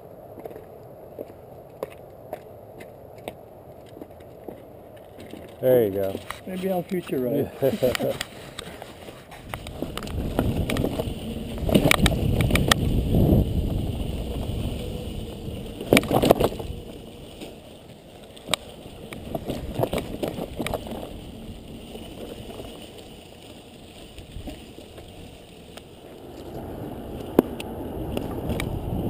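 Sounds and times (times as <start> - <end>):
bike tyres rumbling on dirt: 0.0 - 29.0
bike rattling over bumps: 3.8 - 29.0.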